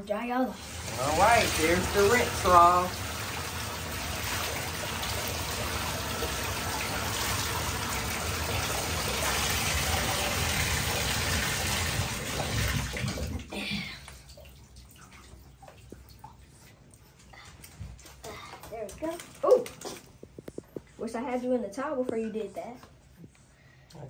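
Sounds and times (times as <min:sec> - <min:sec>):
water running into bathtub: 0:00.0 - 0:21.2.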